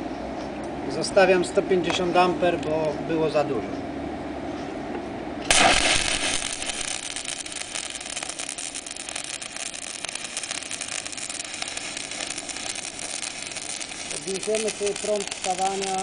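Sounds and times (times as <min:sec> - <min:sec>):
welding arc crackling and hissing: 0:05.5 - 0:16.0.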